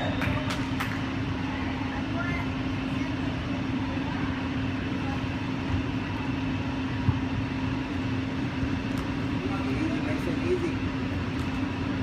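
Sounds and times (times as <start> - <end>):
murmur of distant voices: 0.0 - 12.0
steady low hum: 0.0 - 12.0.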